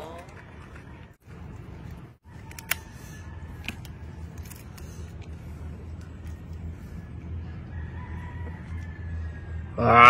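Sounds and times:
steady low hum: 0.9s - 9.8s
prawn shell cracking: 2.3s - 2.9s, 3.6s - 5.4s.

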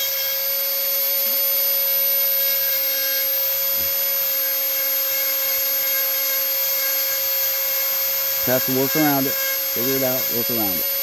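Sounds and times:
rotary tool grinding wood: 2.4s - 11.0s.

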